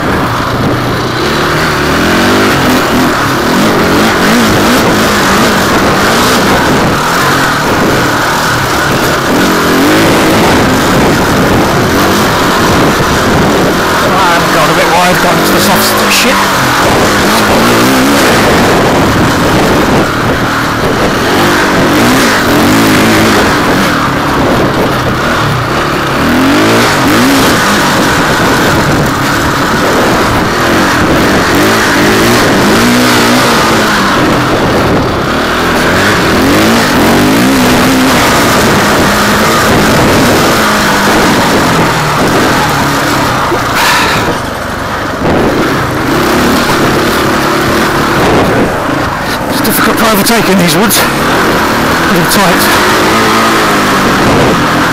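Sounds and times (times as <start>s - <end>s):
dirt bike engine revving: 0.0s - 54.9s
steady rushing noise: 0.0s - 54.9s.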